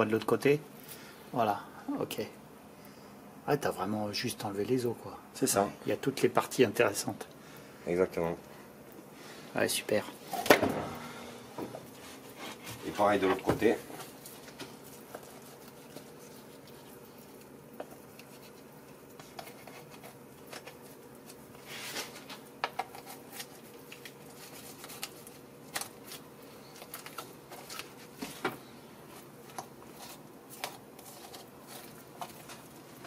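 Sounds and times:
faint steady hum: 0:00.0 - 0:33.0
knife scraping along bones: 0:29.9 - 0:32.6.

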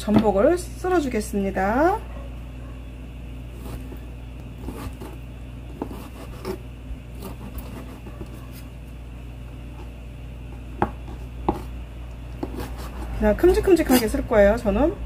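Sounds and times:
low steady hum: 0:00.0 - 0:15.0
knife slicing on cutting board: 0:05.8 - 0:06.6, 0:12.4 - 0:13.2.

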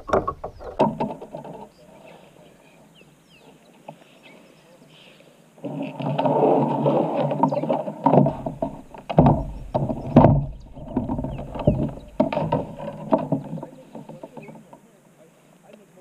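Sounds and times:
knocks and thumps on plastic hull: 0:00.0 - 0:01.7, 0:07.2 - 0:14.8
steady rustling: 0:00.0 - 0:15.6.

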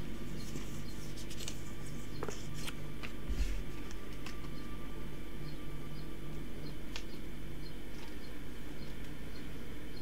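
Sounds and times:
low background hum: 0:00.0 - 0:10.0
cards clicking and rustling: 0:00.4 - 0:03.2, 0:03.8 - 0:04.6.

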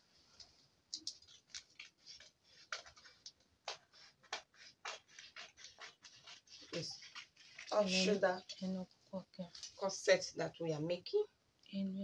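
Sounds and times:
scissors snipping paper: 0:01.0 - 0:07.8.

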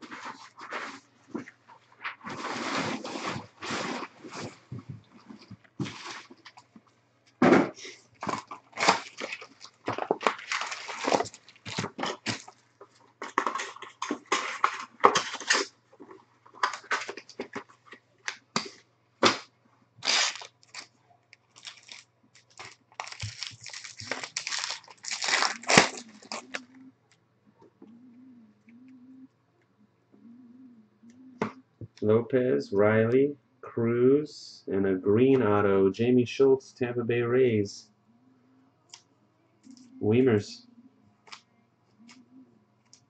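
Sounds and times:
foil wrappers crinkling and tearing: 0:08.2 - 0:15.7, 0:20.0 - 0:26.6.

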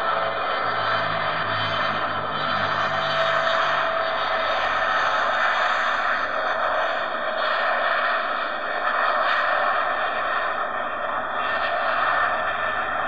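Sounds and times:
jet engines rushing: 0:00.0 - 0:13.0.

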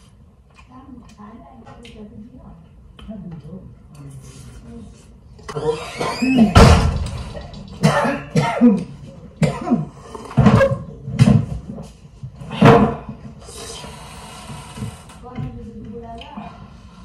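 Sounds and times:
woman coughing: 0:06.0 - 0:06.6, 0:07.8 - 0:10.0.

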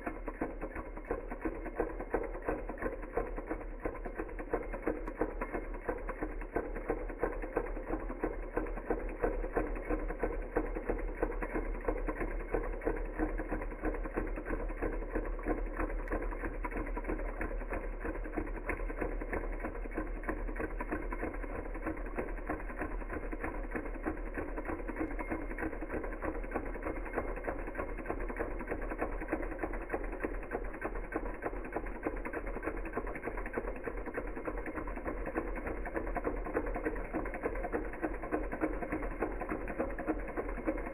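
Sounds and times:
small engine mechanical clatter: 0:00.0 - 0:40.9.

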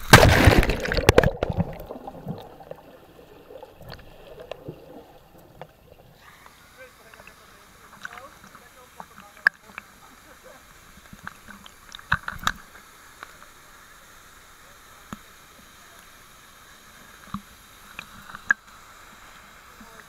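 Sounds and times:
water sloshing and splashing: 0:00.0 - 0:06.2.

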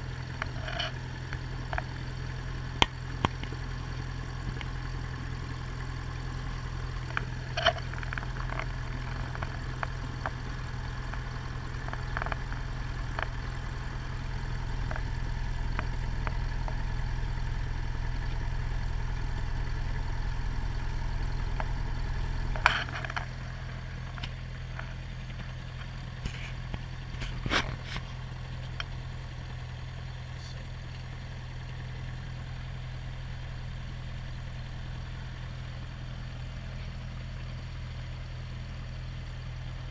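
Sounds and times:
aircraft engine idling: 0:00.0 - 0:39.9.

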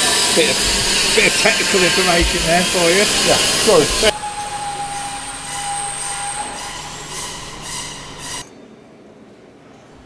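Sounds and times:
hissing noise: 0:00.0 - 0:04.2
machine running: 0:00.0 - 0:08.4
high machine whine: 0:00.0 - 0:08.5.

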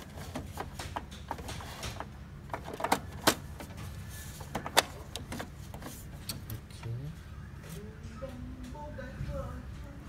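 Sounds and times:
plastic clicks and knocks in printer: 0:00.0 - 0:03.8
low steady hum: 0:00.0 - 0:10.0.

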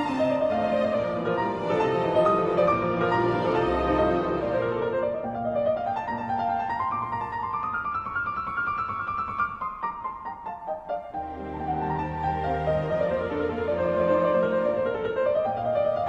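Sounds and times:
piano background music: 0:00.0 - 0:16.0.

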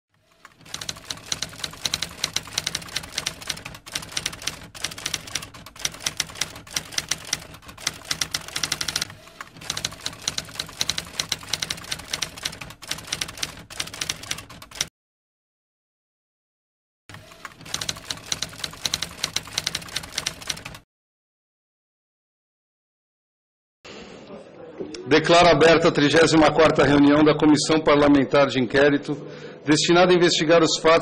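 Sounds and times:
typewriter keys clacking: 0:00.5 - 0:14.9, 0:17.5 - 0:20.8.

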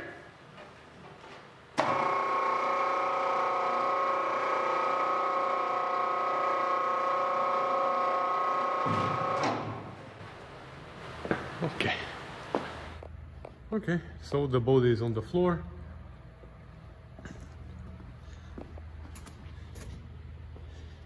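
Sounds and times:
electric hoist motor whining: 0:01.8 - 0:10.2.

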